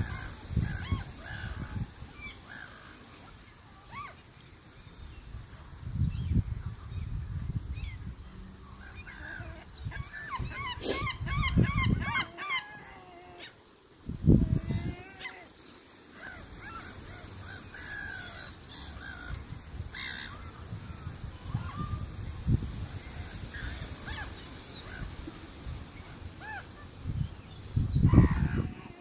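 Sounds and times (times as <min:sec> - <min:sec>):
wind rumbling on microphone: 0:00.0 - 0:02.7, 0:04.8 - 0:12.4, 0:14.0 - 0:15.2, 0:16.3 - 0:29.0
gulls calling: 0:08.7 - 0:13.6.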